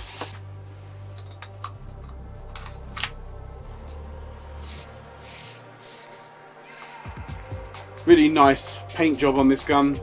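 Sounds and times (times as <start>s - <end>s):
low steady hum: 0.4s - 6.6s.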